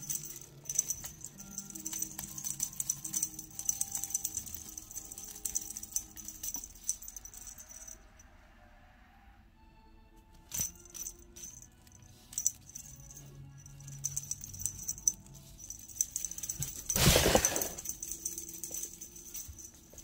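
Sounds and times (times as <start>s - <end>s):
small bells jingling: 0.0s - 8.2s, 10.4s - 20.0s
loud rustle: 16.2s - 18.8s.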